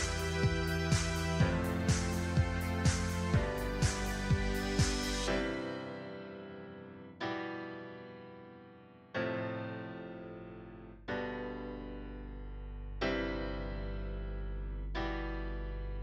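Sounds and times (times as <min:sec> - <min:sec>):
low bass tone: 0:00.0 - 0:05.3
slow keyboard chords: 0:00.0 - 0:16.0.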